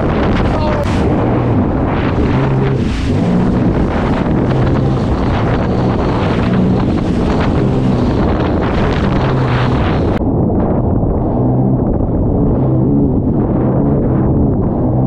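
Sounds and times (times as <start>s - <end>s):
water spray and chop on hull: 0.0s - 10.2s
watercraft engine revving: 0.0s - 15.0s
wind buffeting microphone: 0.0s - 15.0s.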